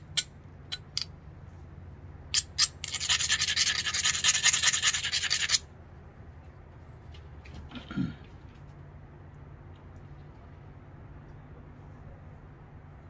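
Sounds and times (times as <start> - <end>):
stone grinding flint edge: 2.3 - 5.6.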